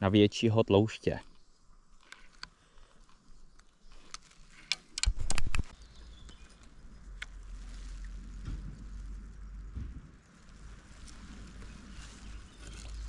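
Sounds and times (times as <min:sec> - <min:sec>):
low wind rumble on microphone: 0:05.1 - 0:13.0.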